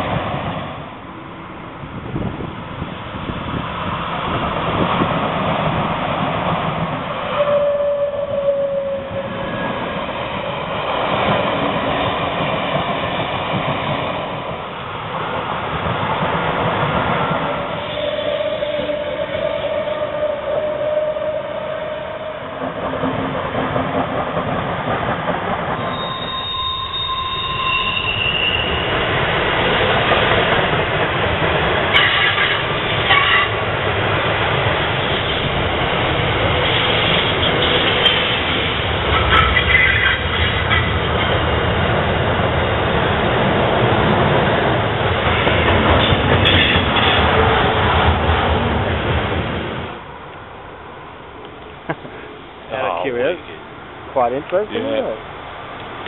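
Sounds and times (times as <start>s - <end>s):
freight train passing: 0.0s - 56.0s
passenger train rolling past: 0.0s - 56.0s
high-pitched wheel squeals: 7.3s - 9.8s, 17.8s - 22.6s, 25.8s - 28.9s.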